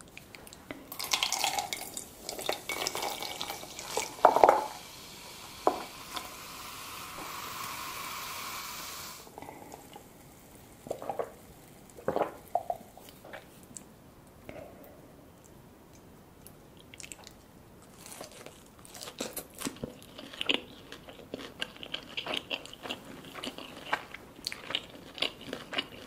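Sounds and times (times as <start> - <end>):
soda pouring into metal mug: 0.9 - 12.7
foam fizzing: 1.1 - 12.5.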